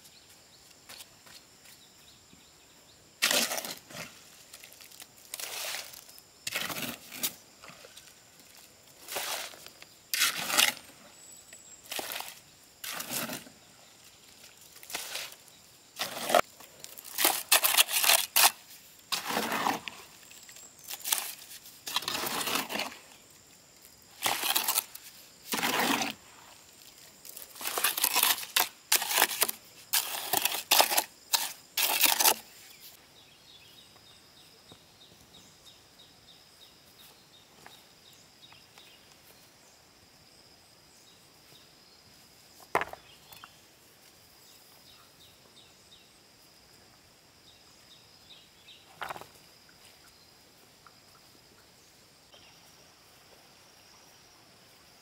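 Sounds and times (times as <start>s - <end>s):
faint outdoor background: 0.0s - 55.0s
shovel scraping mortar in wheelbarrow: 3.2s - 7.4s, 9.0s - 11.1s, 11.9s - 13.6s, 14.8s - 20.2s, 20.9s - 23.1s, 24.1s - 26.5s, 27.4s - 32.8s.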